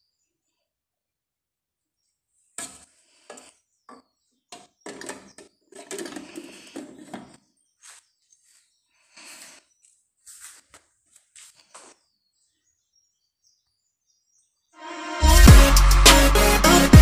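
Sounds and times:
blender parts clicking and rattling: 4.6 - 7.4.

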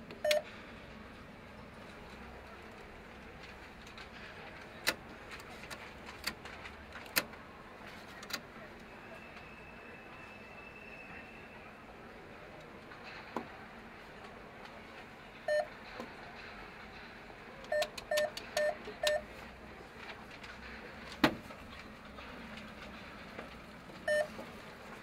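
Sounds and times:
street hum: 0.0 - 25.0
short electronic beeps: 24.1 - 24.3.

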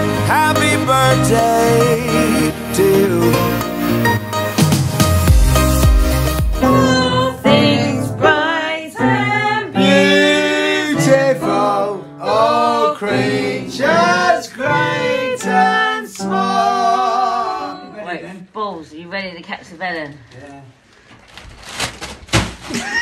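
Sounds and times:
person singing with vibrato: 0.0 - 4.1, 6.6 - 18.0
upright piano: 0.0 - 17.8.

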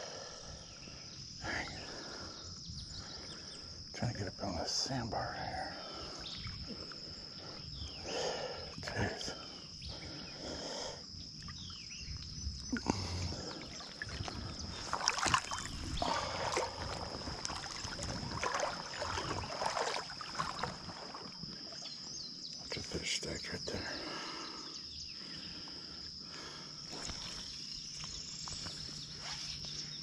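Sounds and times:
high insect drone: 0.0 - 30.0
water splashing around wading legs: 12.7 - 21.8.

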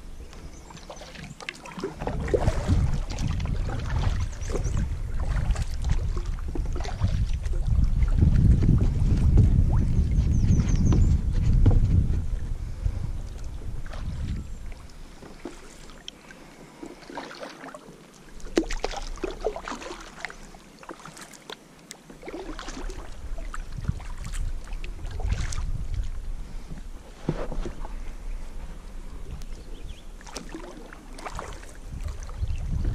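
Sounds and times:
wind buffeting microphone: 0.0 - 15.4, 22.8 - 30.2, 31.3 - 32.9
paddle splashing water: 0.0 - 32.9.

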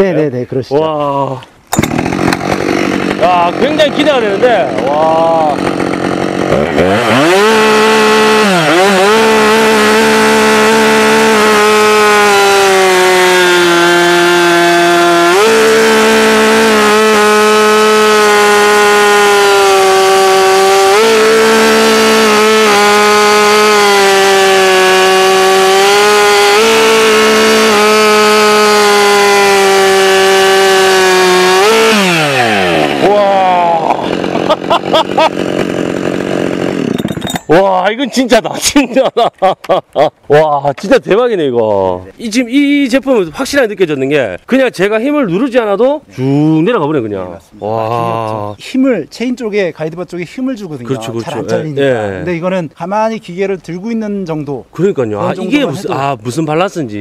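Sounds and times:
chainsaw cutting log: 1.7 - 38.8, 50.8 - 52.4, 55.1 - 56.1.

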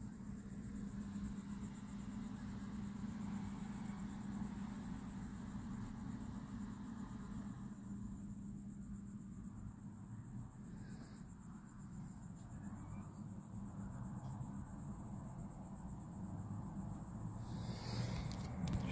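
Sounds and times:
insects chirring: 0.0 - 18.9
low steady hum: 0.0 - 18.9.

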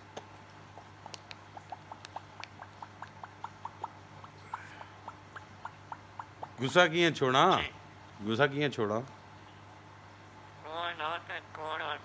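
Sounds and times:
parrot beak clicking: 0.0 - 6.7.

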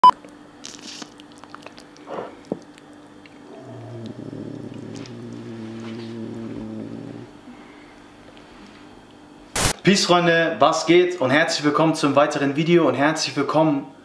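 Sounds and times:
steady low hum: 0.2 - 9.8.

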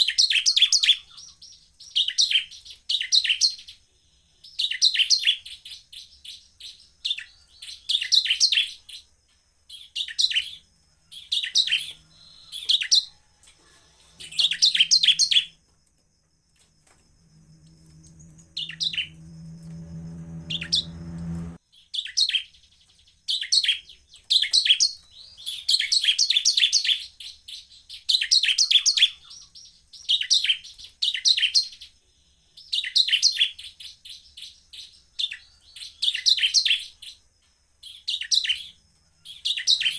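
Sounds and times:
bird singing chattering trills: 0.0 - 9.1, 9.7 - 15.6, 17.5 - 31.9
low hum: 16.8 - 21.6.

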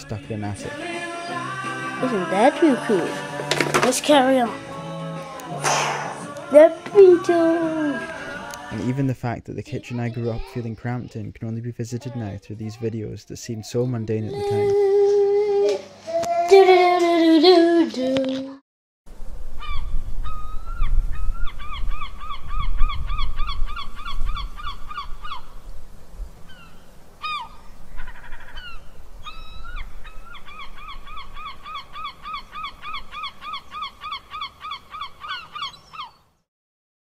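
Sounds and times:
gulls calling: 0.8 - 9.0, 26.5 - 36.3.

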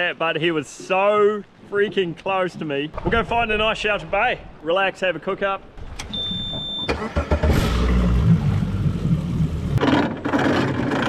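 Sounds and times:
high warning beep: 6.1 - 7.1
outboard motor starting and running: 6.9 - 11.0.

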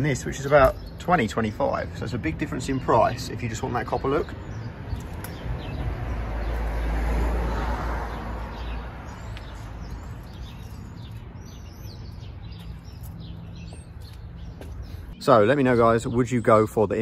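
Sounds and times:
rumbling outdoor noise: 0.0 - 17.0
small birds chirping: 0.0 - 17.0.

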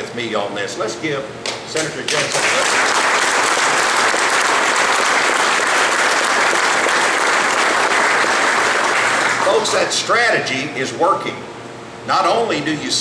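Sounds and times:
audience applauding: 2.1 - 9.8.

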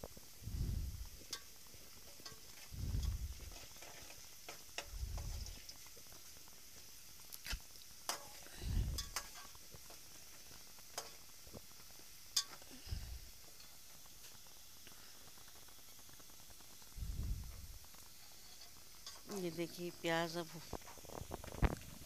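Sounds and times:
onions sizzling in oil: 0.0 - 22.0
metal spoon scraping a pot: 8.1 - 9.6.

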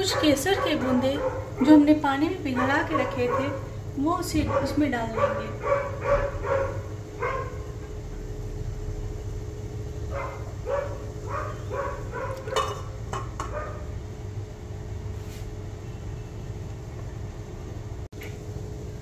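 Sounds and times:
small dog barking: 0.0 - 1.8, 2.5 - 3.7, 4.4 - 7.7, 10.1 - 12.8, 13.4 - 13.9
steady low hum: 0.0 - 19.0.

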